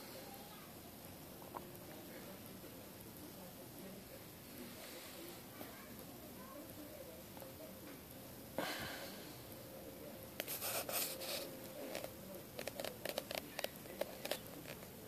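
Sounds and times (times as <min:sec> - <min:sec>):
faint steady hum: 0:00.0 - 0:15.0
clicks and rustling handling noise: 0:10.4 - 0:15.0.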